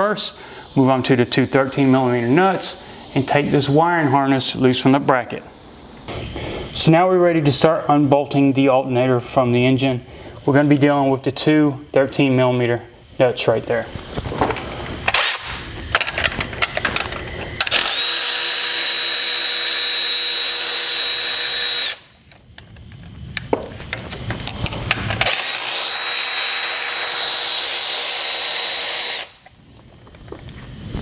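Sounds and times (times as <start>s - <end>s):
cordless ratchet whirring: 15.0s - 22.4s, 23.9s - 29.5s.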